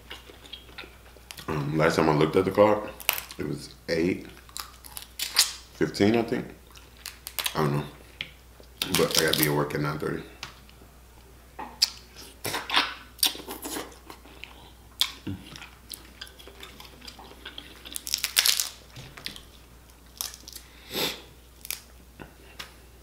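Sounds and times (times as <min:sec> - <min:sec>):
crab shells cracking: 0:03.0 - 0:03.4, 0:04.4 - 0:05.7, 0:06.8 - 0:07.6, 0:15.9 - 0:19.4, 0:20.1 - 0:20.6, 0:21.6 - 0:21.9
chewing: 0:11.8 - 0:19.6.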